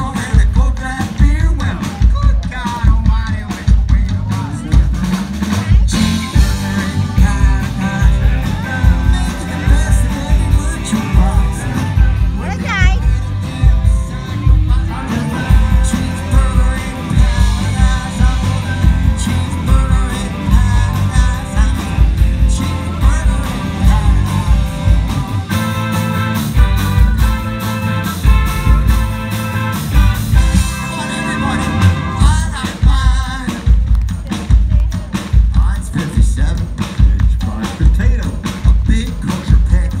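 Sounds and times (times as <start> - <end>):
person singing: 0.0 - 26.0, 30.4 - 40.0
live rock band playing: 0.0 - 40.0.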